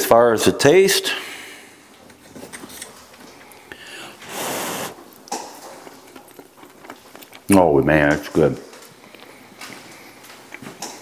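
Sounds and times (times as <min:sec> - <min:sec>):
loud breath through the nose: 0:03.7 - 0:05.0.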